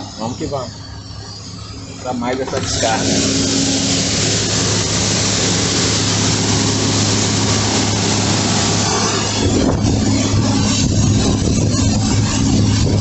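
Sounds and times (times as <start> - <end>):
combine engine hum: 0.0 - 13.0.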